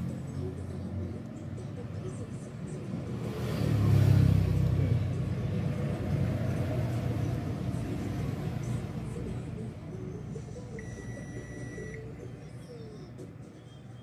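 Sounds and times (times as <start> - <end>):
vehicle engine passing by: 2.5 - 9.5.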